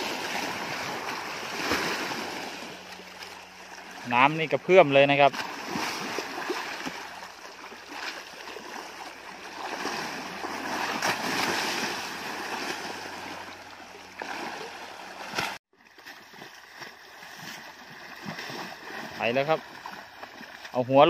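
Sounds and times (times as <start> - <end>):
water sloshing and splashing: 0.0 - 21.0.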